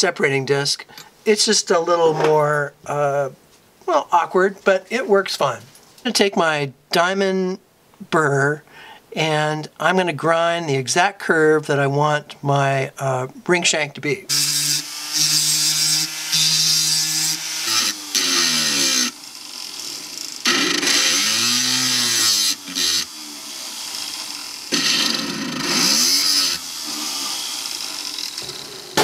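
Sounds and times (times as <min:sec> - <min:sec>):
rotary tool grinding steel: 0:14.3 - 0:29.0.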